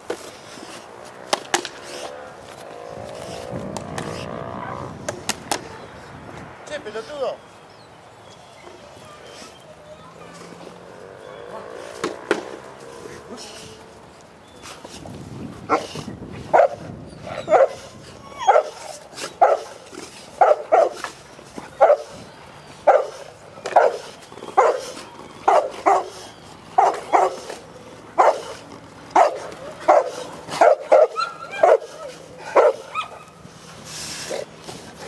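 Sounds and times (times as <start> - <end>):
dog barking: 16.5 - 16.8, 17.4 - 17.8, 18.5 - 18.8, 19.4 - 19.8, 20.4 - 21.0, 21.8 - 22.1, 22.8 - 24.9, 25.5 - 26.2, 26.8 - 27.5, 28.2 - 28.5, 29.2 - 33.2.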